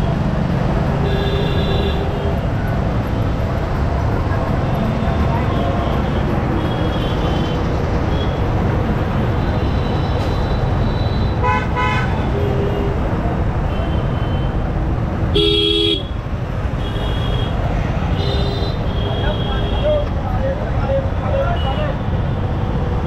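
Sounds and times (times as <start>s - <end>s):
road noise: 0.0s - 23.0s
vehicle horns honking: 9.4s - 12.8s, 15.3s - 16.1s.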